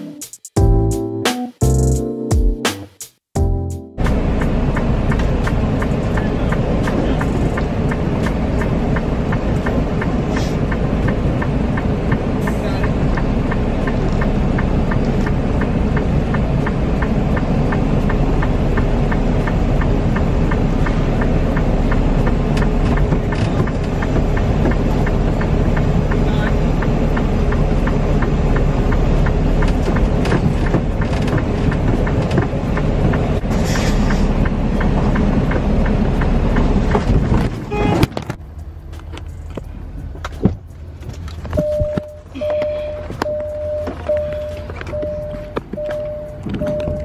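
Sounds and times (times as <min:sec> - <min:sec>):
diesel truck engine rumbling: 0:03.4 - 0:47.0
light ticking: 0:04.5 - 0:37.0
short hiss: 0:33.5 - 0:34.3.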